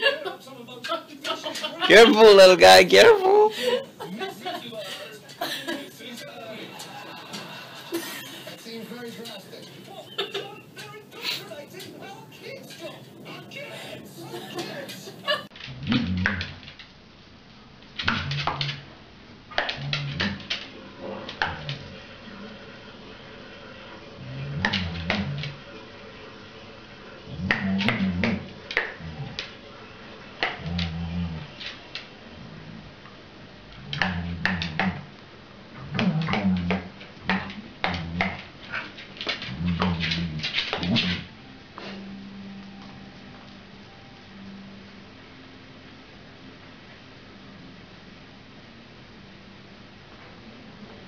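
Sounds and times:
dog growling: 0:11.3 - 0:16.6, 0:19.5 - 0:22.6, 0:24.2 - 0:25.7, 0:27.2 - 0:29.6, 0:30.4 - 0:33.0, 0:33.6 - 0:35.1, 0:35.7 - 0:41.3.

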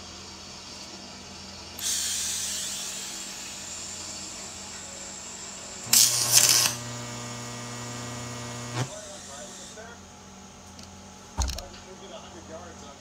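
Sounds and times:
hiss: 0:01.8 - 0:04.5, 0:08.9 - 0:09.9
welding arc buzzing hum: 0:01.8 - 0:11.8
welding arc crackling: 0:05.8 - 0:09.8.

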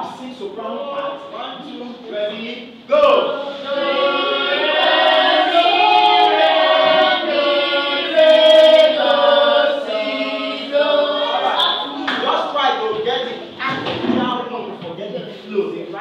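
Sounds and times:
choir singing long held notes: 0:03.2 - 0:11.9.

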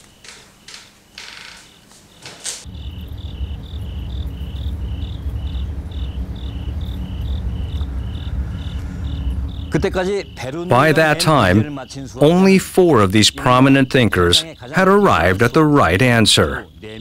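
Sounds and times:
cricket chirping: 0:00.0 - 0:17.0
steady low rumble: 0:02.6 - 0:17.0.

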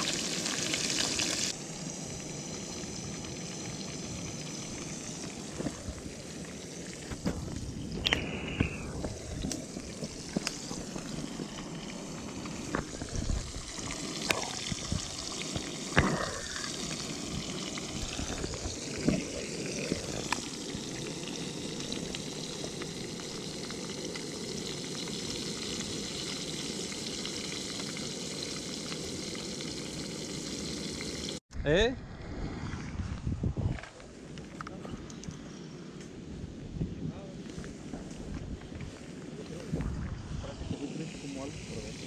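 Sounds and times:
fish sizzling in hot oil: 0:00.0 - 0:31.4.

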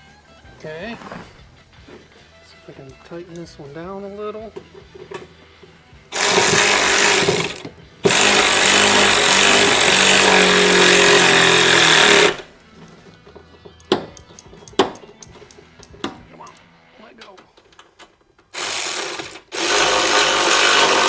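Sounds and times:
impact wrench hammering: 0:06.1 - 0:12.5, 0:13.8 - 0:16.3.

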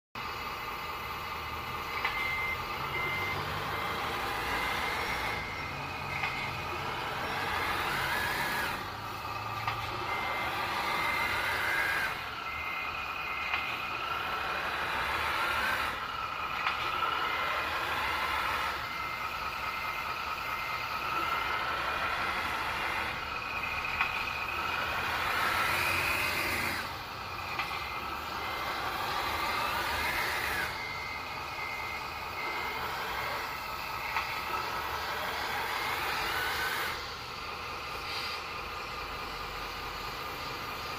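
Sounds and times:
simulated truck engine: 0:00.2 - 0:40.9
reversing beeps: 0:01.2 - 0:37.1
short bursts of hiss: 0:38.0 - 0:38.5.

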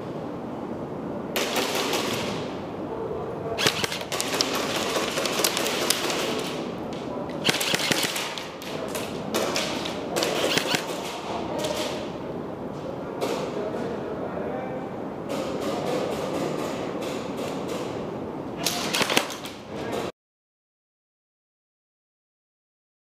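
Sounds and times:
electric gun firing full auto: 0:01.4 - 0:02.4, 0:03.6 - 0:06.7, 0:07.4 - 0:11.8, 0:18.6 - 0:19.5.

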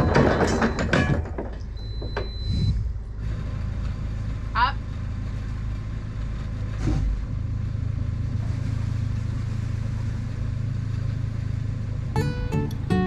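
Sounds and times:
boat diesel engine humming: 0:02.9 - 0:13.0
acoustic guitar music: 0:12.1 - 0:13.0.

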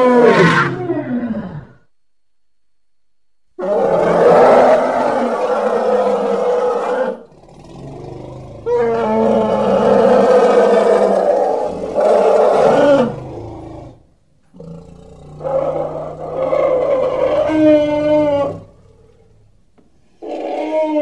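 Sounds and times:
long pitched animal calls: 0:03.6 - 0:13.9, 0:14.6 - 0:19.4, 0:20.2 - 0:21.0.

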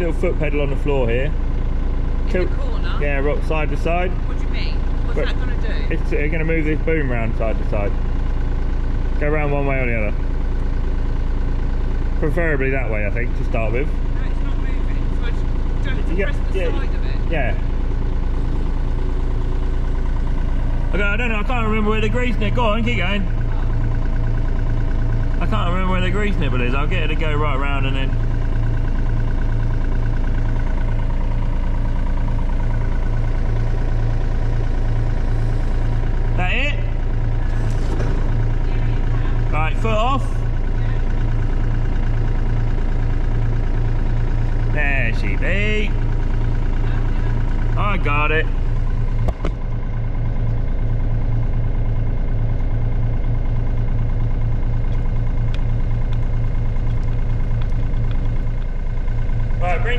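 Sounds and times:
diesel engine running: 0:00.0 - 0:59.9
hydraulic swing ram: 0:35.2 - 0:38.7.

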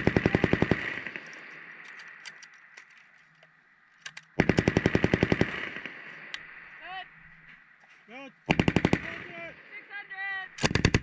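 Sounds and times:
machine gun firing bursts: 0:00.0 - 0:01.4, 0:04.4 - 0:06.1, 0:08.5 - 0:09.4, 0:10.6 - 0:11.0
gunfire echo: 0:04.4 - 0:06.3, 0:08.5 - 0:09.6.

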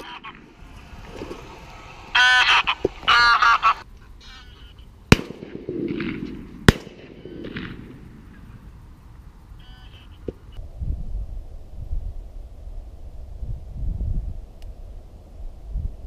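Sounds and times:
low rumble: 0:00.0 - 0:04.0
harsh bird calls: 0:01.4 - 0:04.9
shotgun shots: 0:05.1 - 0:08.0.

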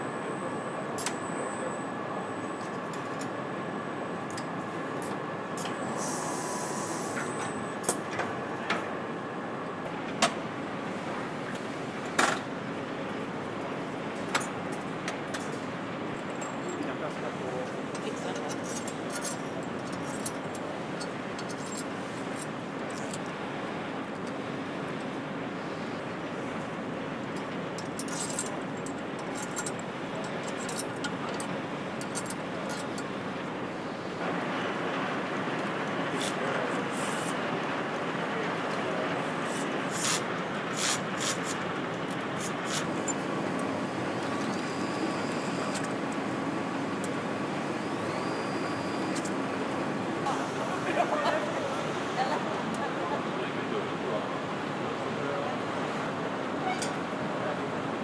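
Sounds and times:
machinery hum: 0:00.0 - 0:58.0
short hiss: 0:39.5 - 0:40.2, 0:40.8 - 0:41.5.

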